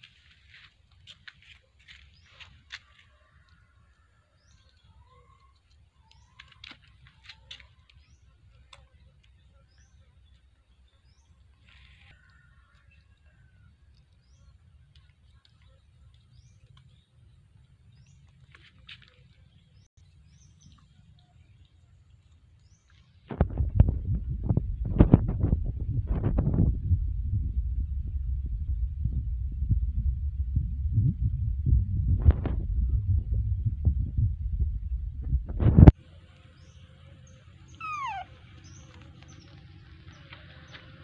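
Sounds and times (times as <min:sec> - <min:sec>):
low background rumble: 0:23.4 - 0:37.0
faint bird chirping: 0:36.4 - 0:40.9.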